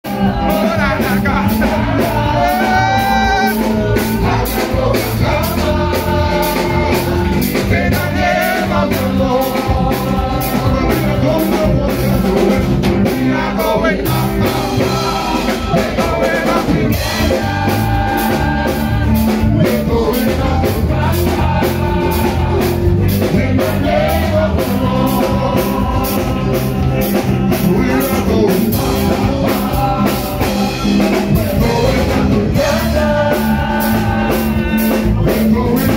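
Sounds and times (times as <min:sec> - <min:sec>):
gospel band playing through speakers: 0:00.0 - 0:35.9
people singing into microphones: 0:00.0 - 0:35.9.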